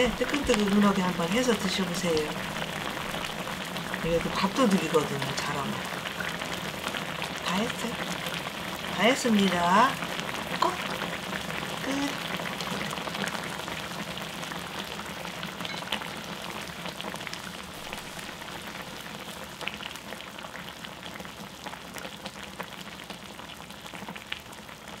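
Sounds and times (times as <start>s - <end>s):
stew bubbling in a pot: 0.0s - 25.0s.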